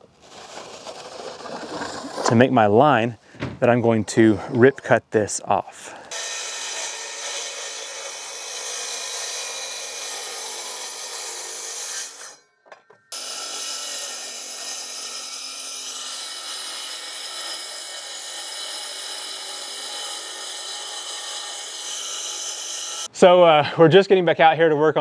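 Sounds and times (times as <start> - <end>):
circular saw cutting: 6.1 - 12.4, 13.1 - 23.1.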